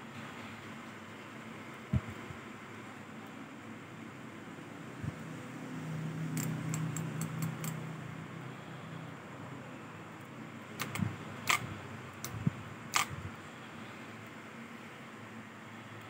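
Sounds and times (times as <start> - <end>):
sharp reel clicks: 10.8 - 13.2.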